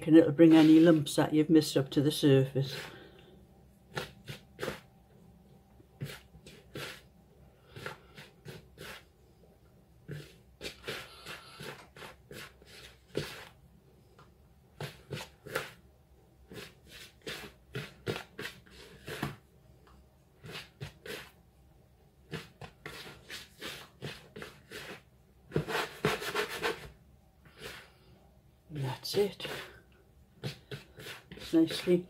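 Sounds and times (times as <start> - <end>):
hands rubbing flour in bowl: 0.3 - 1.2, 2.6 - 3.1, 3.8 - 4.9, 6.0 - 9.2, 10.0 - 13.6, 16.4 - 19.4, 20.4 - 21.4, 22.3 - 26.9, 28.8 - 29.8, 30.4 - 32.0.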